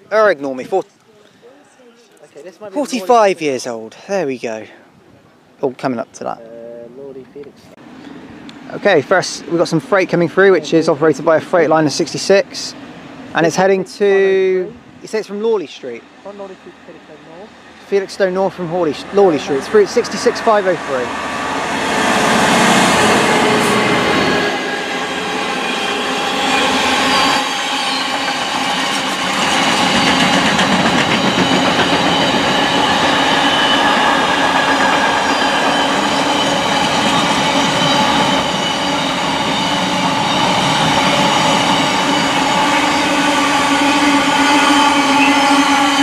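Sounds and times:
diesel locomotive passing: 7.8s - 46.0s
wheels rumbling over rails: 18.4s - 46.0s
high whining wheel tones: 20.8s - 46.0s.

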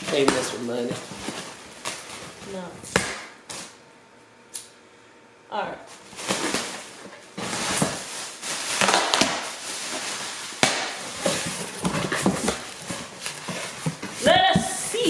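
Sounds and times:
packaging rustling and crinkling: 0.0s - 2.6s, 5.9s - 15.0s.

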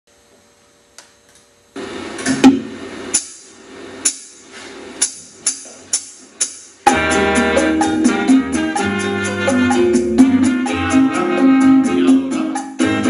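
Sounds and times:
sharp percussion strikes: 2.4s - 4.4s, 5.0s - 13.0s
soft backing chords: 5.0s - 13.0s.

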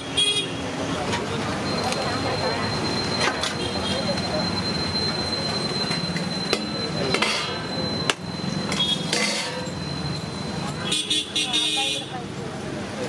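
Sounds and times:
crowd chatter: 0.0s - 13.0s
ladle and lids clanking on pots: 9.0s - 9.8s.

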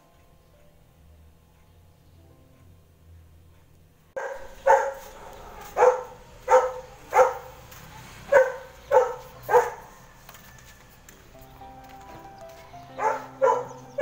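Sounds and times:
dog barking: 4.2s - 10.0s, 13.0s - 14.0s.

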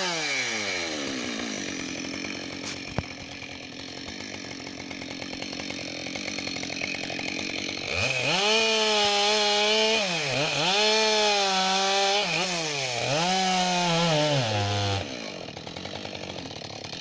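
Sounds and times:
chainsaw idling and sawing log: 0.0s - 17.0s.

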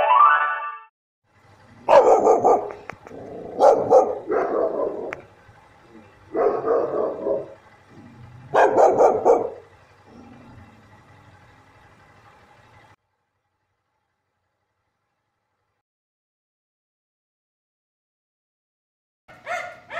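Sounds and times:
dog barking: 1.8s - 5.2s, 6.3s - 7.6s, 8.5s - 9.7s, 19.3s - 19.9s.

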